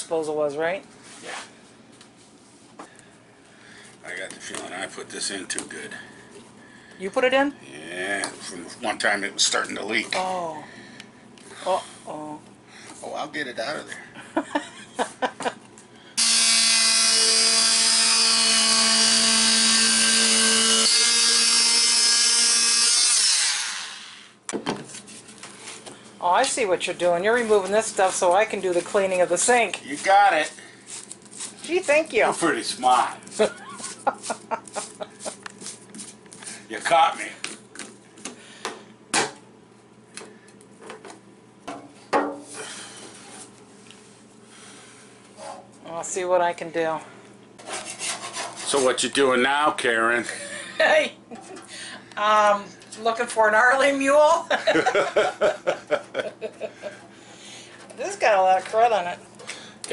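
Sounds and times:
oscillating multi-tool cutting: 0:16.2 - 0:24.3.

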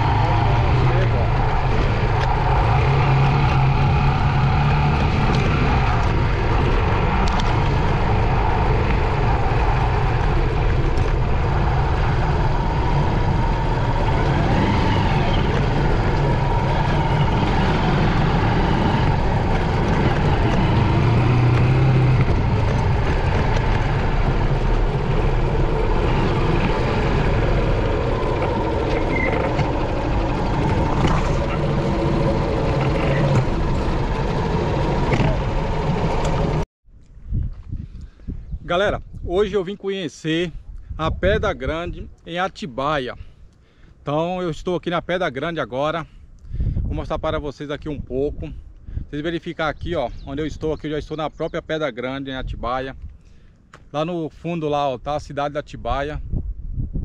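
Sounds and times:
motorcycle engine running: 0:00.0 - 0:36.6.

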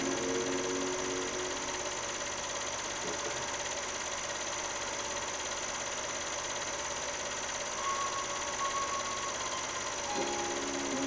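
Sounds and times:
machine humming and hissing: 0:00.0 - 0:11.0
faint high tone: 0:07.8 - 0:11.0.

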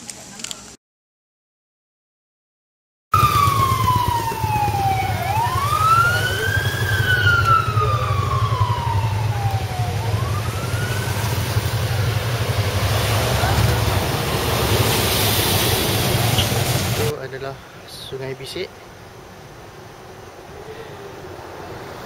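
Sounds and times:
siren wailing: 0:03.2 - 0:12.4
vehicle rumble: 0:03.2 - 0:22.0.

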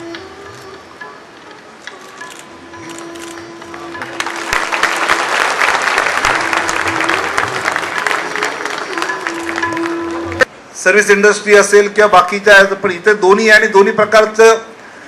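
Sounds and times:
background music with held note: 0:00.0 - 0:10.5
audience applause: 0:03.9 - 0:10.5.

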